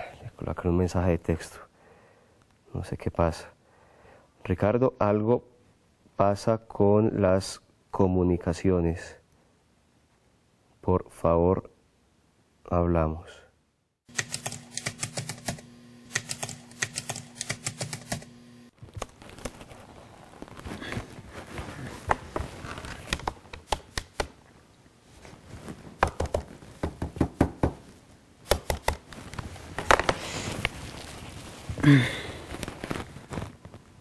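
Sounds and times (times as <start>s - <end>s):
keyboard typing clicks: 14.2s - 18.3s.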